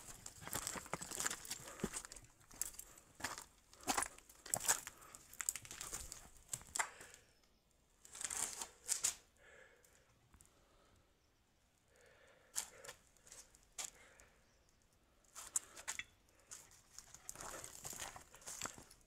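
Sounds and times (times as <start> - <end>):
footsteps crunching on rubble: 0.0 - 7.2, 15.4 - 19.0.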